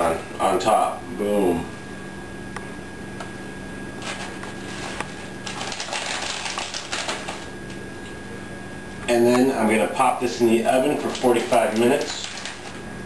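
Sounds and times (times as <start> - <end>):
cheese shaker rattling patter: 4.0 - 7.5, 10.9 - 12.8.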